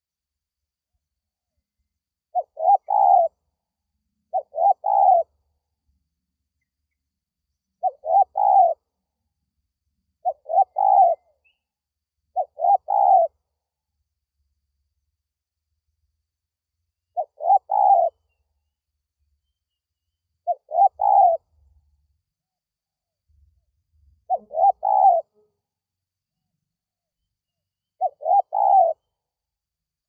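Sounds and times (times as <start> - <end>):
dove cooing: 2.3 - 3.4, 4.3 - 5.4, 7.8 - 8.8, 10.2 - 11.4, 12.3 - 13.4, 17.2 - 18.3, 20.4 - 21.6, 24.2 - 25.5, 28.0 - 29.1.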